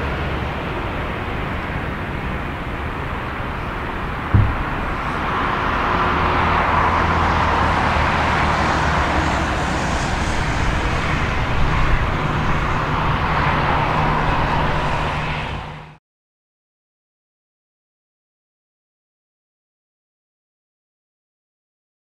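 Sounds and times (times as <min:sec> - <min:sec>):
jet engines roaring: 0:00.1 - 0:16.0
short thump: 0:04.3 - 0:05.2.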